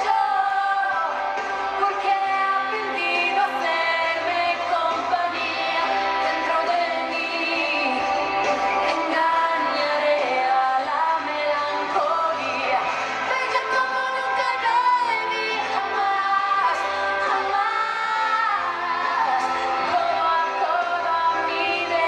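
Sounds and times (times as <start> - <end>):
woman singing pop song: 0.0 - 22.0.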